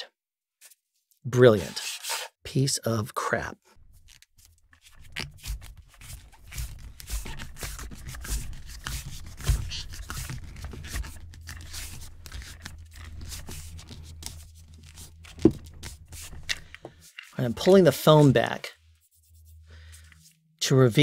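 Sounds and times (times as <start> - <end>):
hands rubbing metal pole: 3.8 - 20.4.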